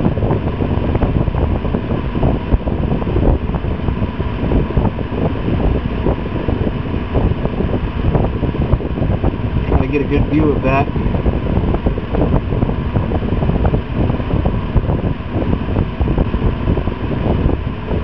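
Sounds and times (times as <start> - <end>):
low rumble: 0.0 - 18.0
steady rushing noise: 0.0 - 18.0.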